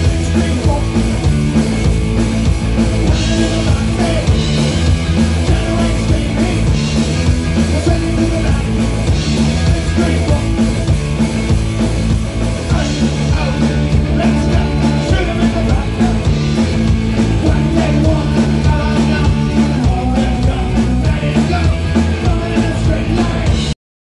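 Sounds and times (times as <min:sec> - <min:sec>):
man singing: 0:00.0 - 0:01.4, 0:03.0 - 0:07.0, 0:07.6 - 0:10.9, 0:12.6 - 0:23.8
electric guitar: 0:00.0 - 0:23.7
bass guitar: 0:00.0 - 0:23.8
drums: 0:00.0 - 0:23.8.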